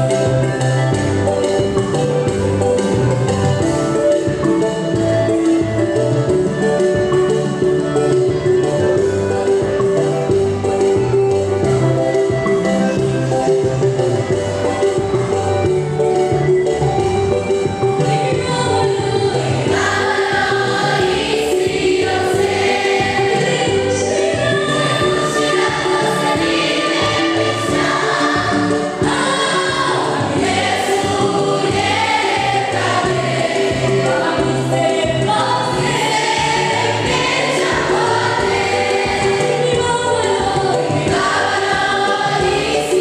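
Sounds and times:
choir singing gospel song: 18.8 - 43.0.

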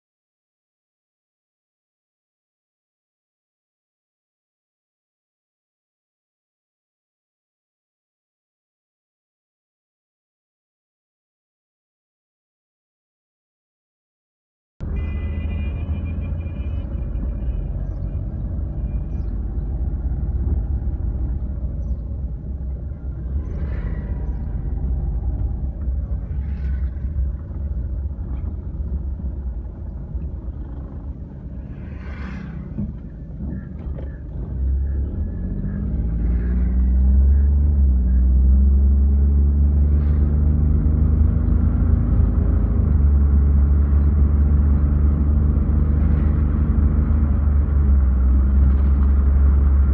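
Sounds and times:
car engine: 14.8 - 49.9
road rumble: 14.8 - 49.9.

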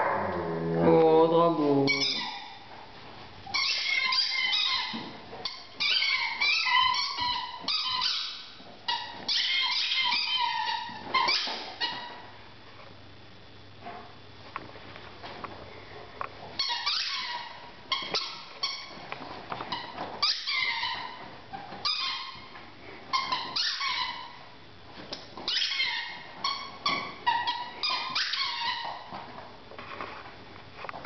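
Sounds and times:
rubber squeaky toy squeaking: 1.8 - 2.5, 3.5 - 12.1, 16.6 - 19.0, 19.7 - 22.4, 23.1 - 24.3, 25.5 - 29.0.

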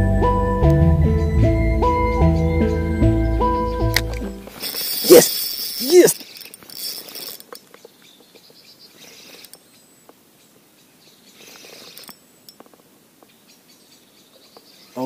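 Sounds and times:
small clicks: 3.9 - 8.3, 9.2 - 10.2, 11.5 - 12.8
faint bird chirps: 4.8 - 12.5, 13.2 - 15.0.

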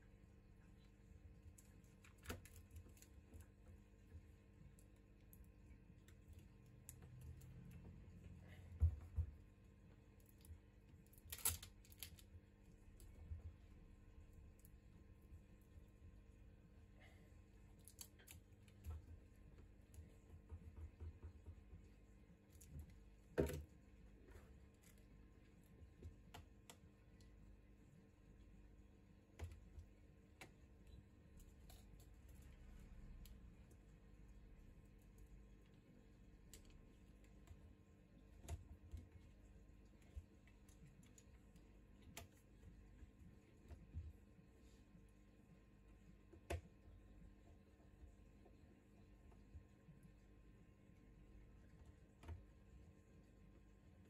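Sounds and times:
faint clicks and taps: 0.1 - 16.7, 17.6 - 54.0
plastic phone parts clicking: 11.1 - 12.2.

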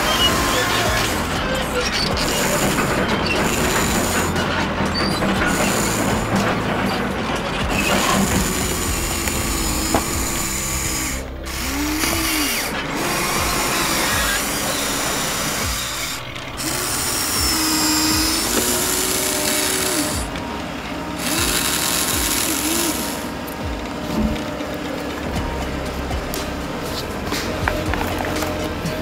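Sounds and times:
small electric motors whirring: 0.0 - 6.7, 7.6 - 20.4, 21.1 - 23.8.

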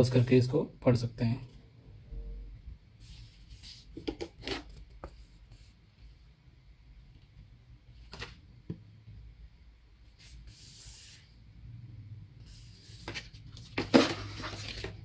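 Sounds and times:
paper rubbing and sliding: 10.1 - 11.4.

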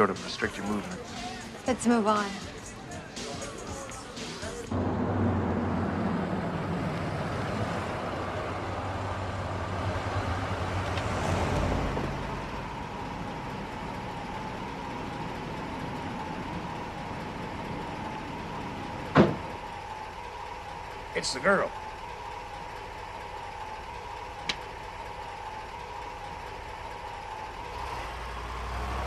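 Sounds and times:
car engine drone: 0.0 - 29.0
street hum: 0.0 - 29.0.

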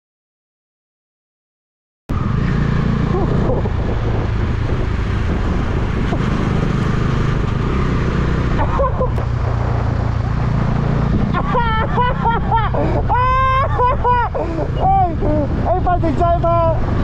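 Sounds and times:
wind rushing over microphone: 2.1 - 17.0
motorcycle engine running: 2.2 - 12.4.

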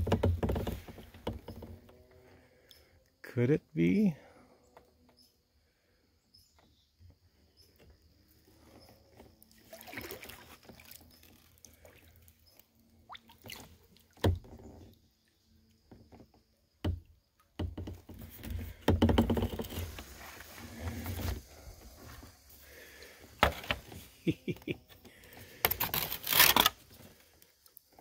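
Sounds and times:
paddle strokes splashing water: 9.4 - 14.8.

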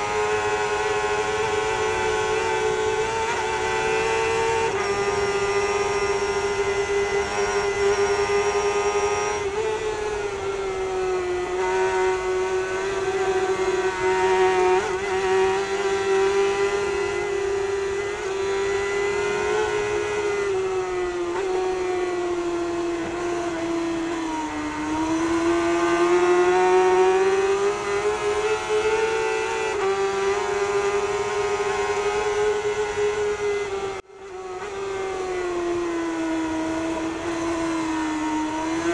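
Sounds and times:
motorcycle engine at high revs: 0.0 - 38.9.

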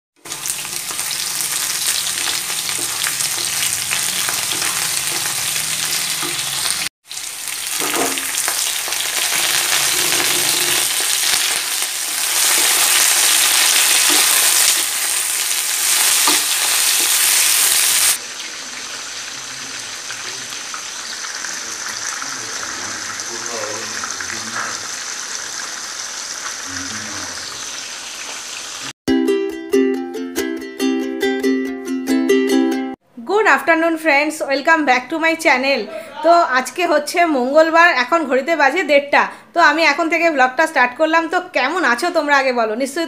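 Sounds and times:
food sizzling in hot oil: 0.2 - 29.0
wooden spatula scraping wok: 7.7 - 18.1.

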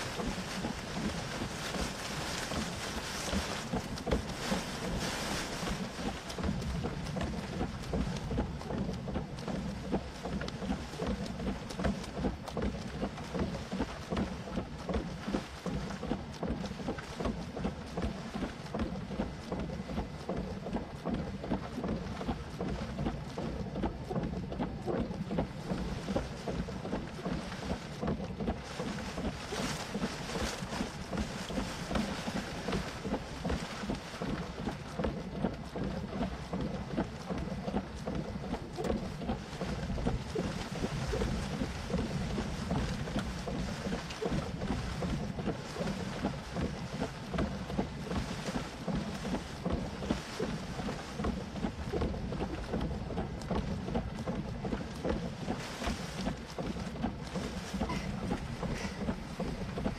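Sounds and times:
rain falling: 0.0 - 9.0, 28.6 - 34.7, 38.8 - 59.9
wind buffeting microphone: 0.0 - 15.5, 36.9 - 59.9.

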